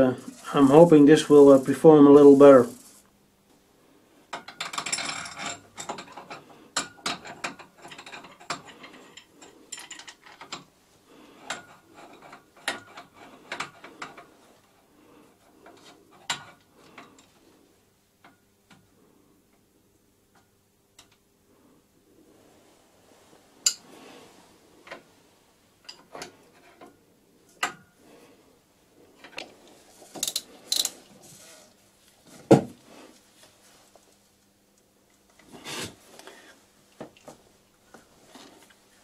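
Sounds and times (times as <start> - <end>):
metal clicks and clatter: 4.4 - 10.7.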